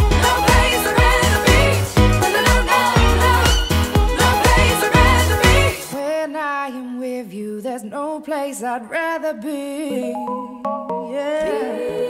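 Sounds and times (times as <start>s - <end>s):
pop song: 0.0s - 12.0s.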